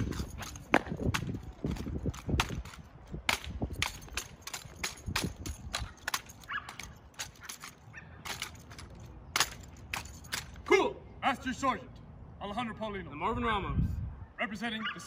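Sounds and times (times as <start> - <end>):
boot heels striking hard court: 0.0 - 7.7.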